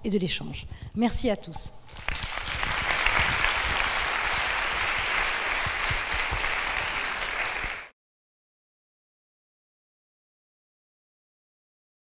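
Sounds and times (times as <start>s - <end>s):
audience applauding: 1.9s - 7.9s.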